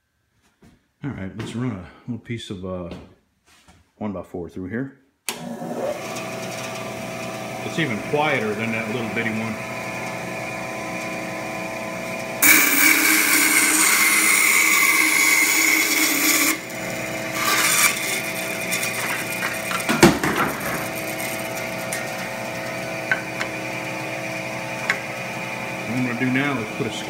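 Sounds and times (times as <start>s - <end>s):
bandsaw humming: 5.3s - 27.0s
saw blade cutting wood: 12.4s - 23.6s.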